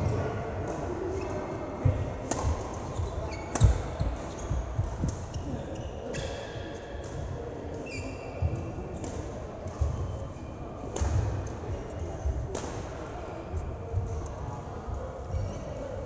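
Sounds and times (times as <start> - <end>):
faint background voices: 0.0 - 16.0
shoes squeaking on floor: 2.9 - 6.5, 7.8 - 8.6.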